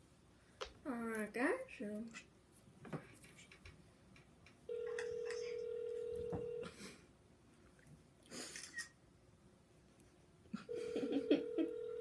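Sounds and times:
telephone ringback tone: 0:04.7 - 0:06.7, 0:10.7 - 0:12.0.

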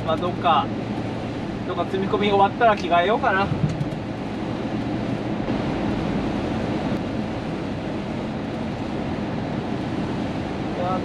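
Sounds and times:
truck engine rumble: 0:00.0 - 0:11.0
tyres on wet road: 0:00.0 - 0:11.0.

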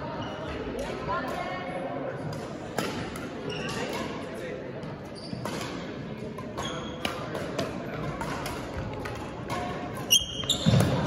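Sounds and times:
background chatter: 0:00.0 - 0:11.0
rackets hitting shuttlecock: 0:02.2 - 0:04.3, 0:04.9 - 0:11.0
sneakers squeaking on floor: 0:03.4 - 0:04.0, 0:05.0 - 0:05.9, 0:06.5 - 0:07.3, 0:09.6 - 0:11.0.

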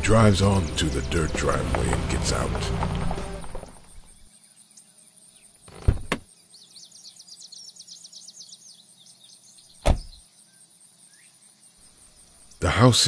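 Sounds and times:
quiet country ambience: 0:00.0 - 0:13.0
loud thump: 0:09.8 - 0:10.1
car door shutting: 0:09.8 - 0:10.2.

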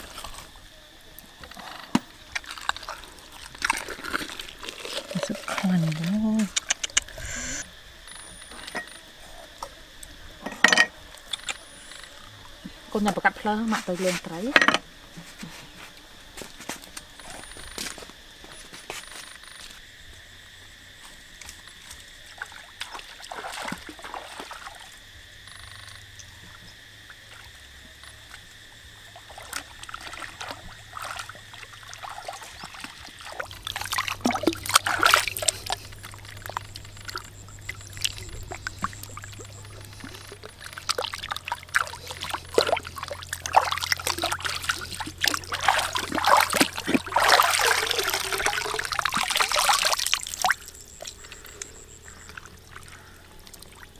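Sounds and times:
water splashing and dribbling: 0:00.0 - 0:07.1, 0:21.3 - 0:25.1, 0:26.1 - 0:53.9.

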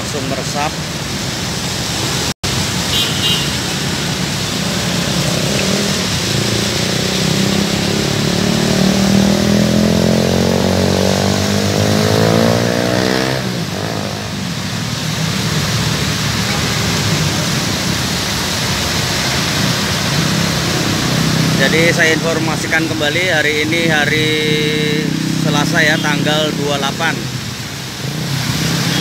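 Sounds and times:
heavy rain hiss: 0:00.0 - 0:29.0
traffic on wet road: 0:00.0 - 0:29.0
vehicle engine accelerating: 0:03.9 - 0:16.4.

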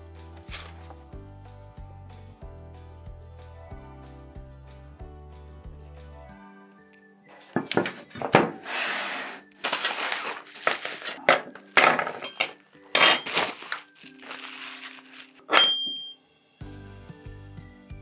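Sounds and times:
soft background music: 0:00.0 - 0:18.0
bubble wrap crinkling: 0:00.4 - 0:01.0, 0:07.4 - 0:15.5
metal utensils clinking: 0:07.4 - 0:16.1.

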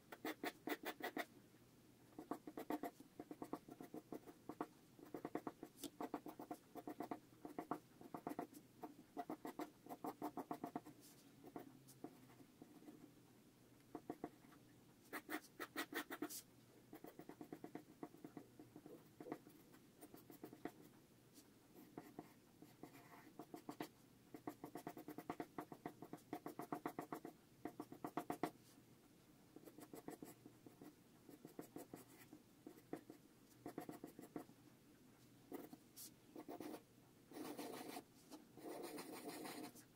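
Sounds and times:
pencil scratching on paper: 0:00.1 - 0:01.3, 0:02.1 - 0:13.1, 0:15.0 - 0:20.9, 0:21.8 - 0:28.7, 0:29.6 - 0:34.5, 0:35.5 - 0:39.9.

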